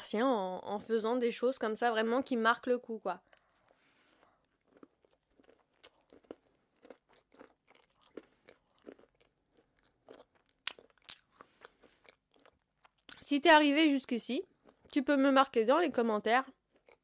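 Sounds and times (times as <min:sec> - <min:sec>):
chewing mouth clicks and smacks: 0:04.2 - 0:13.2.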